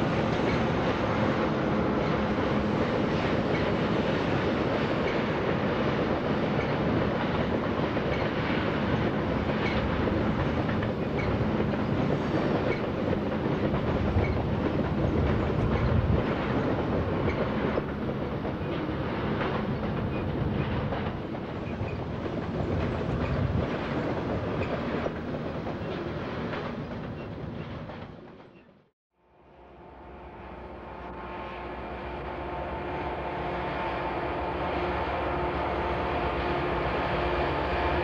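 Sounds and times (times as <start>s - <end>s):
train wheels rumbling on rails: 0.0s - 28.9s.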